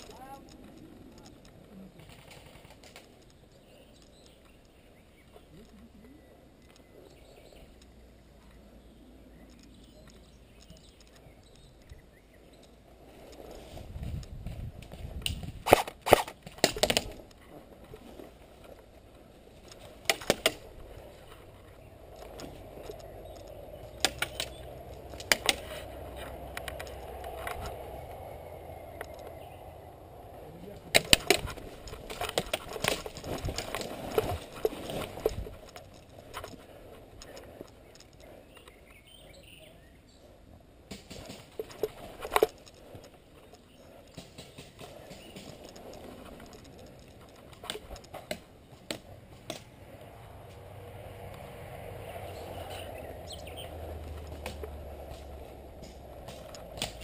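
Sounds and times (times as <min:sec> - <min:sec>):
sharp clicks and knocks: 0:14.1 - 0:17.4, 0:19.6 - 0:21.4, 0:22.1 - 0:28.2, 0:30.9 - 0:38.8, 0:40.9 - 0:49.7, 0:54.0 - 0:57.0.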